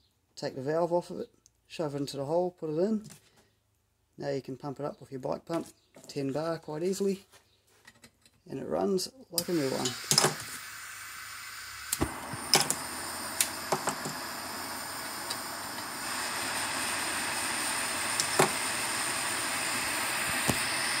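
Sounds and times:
petrol stove burning with hiss: 0:09.4 - 0:21.0
sharp clicks and knocks: 0:11.9 - 0:12.8, 0:13.4 - 0:14.2, 0:18.2 - 0:18.6.

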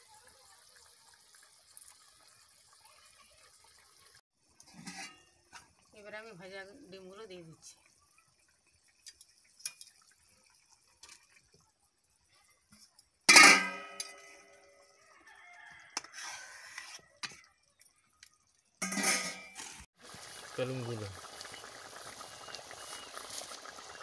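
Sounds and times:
rooster crowing: 0:15.0 - 0:17.0.

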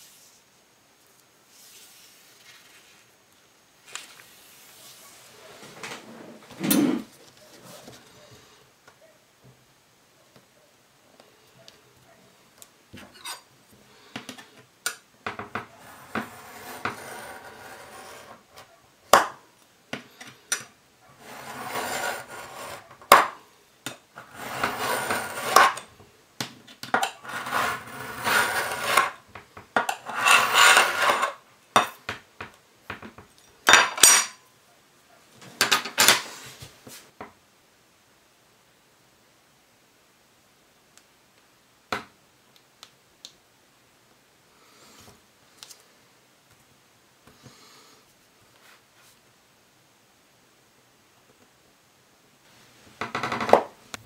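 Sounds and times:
knife scraping along ruler: 0:15.8 - 0:18.6, 0:21.2 - 0:22.9, 0:24.2 - 0:25.9, 0:27.0 - 0:29.2, 0:29.9 - 0:31.4.

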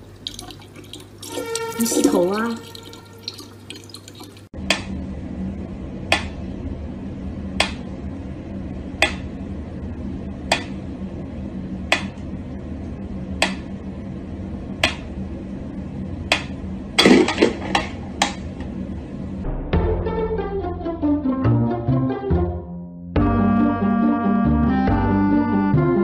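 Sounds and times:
steady low hum: 0:02.4 - 0:21.2.

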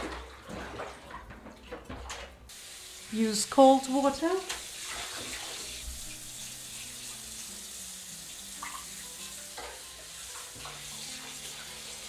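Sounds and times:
water splashes: 0:00.0 - 0:02.4, 0:03.0 - 0:07.2
tap water running into tub: 0:00.0 - 0:12.0.

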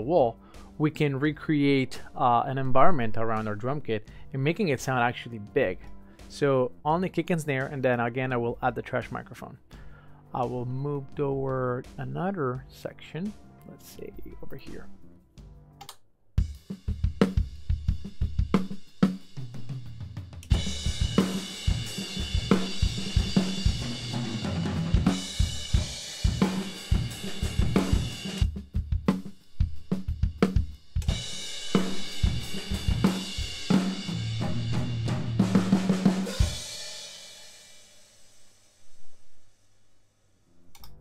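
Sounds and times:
drum kit playing: 0:07.2 - 0:08.3, 0:14.4 - 0:15.0, 0:16.4 - 0:39.4.

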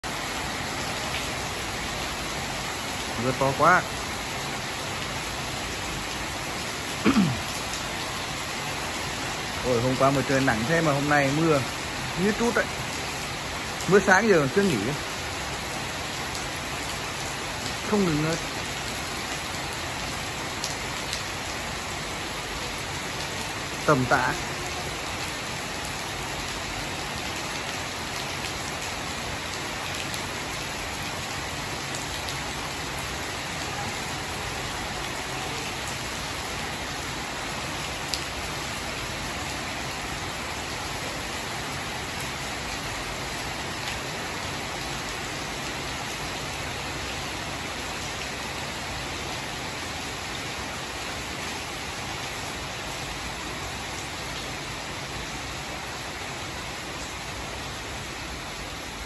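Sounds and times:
heavy rain on foliage and patio: 0:00.0 - 0:59.0.

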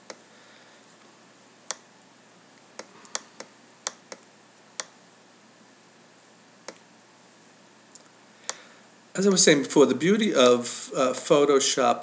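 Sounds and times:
faint low hum: 0:00.0 - 0:12.0
computer input device clicks: 0:02.8 - 0:05.0.

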